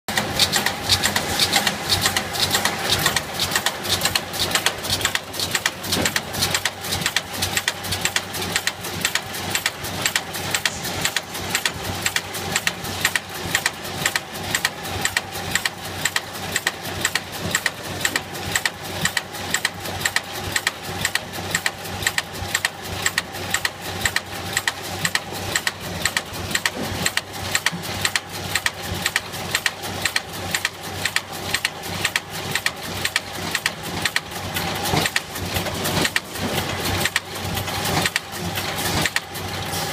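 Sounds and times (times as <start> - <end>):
machine hum: 0.1 - 17.0
spot welder clacking: 0.1 - 39.9.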